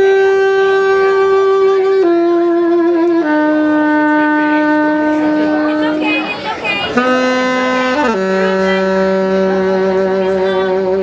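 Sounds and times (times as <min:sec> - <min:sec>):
saxophone long held notes: 0:00.0 - 0:11.0.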